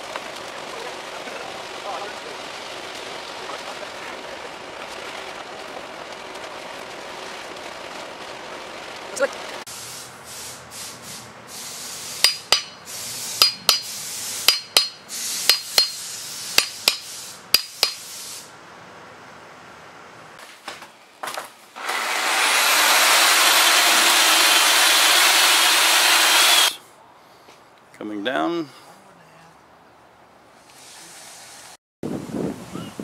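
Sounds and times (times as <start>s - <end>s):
sharp metallic knocks: 12.2s - 12.8s, 13.4s - 13.9s, 14.5s - 16.0s
electric drill boring into steel: 21.8s - 26.8s.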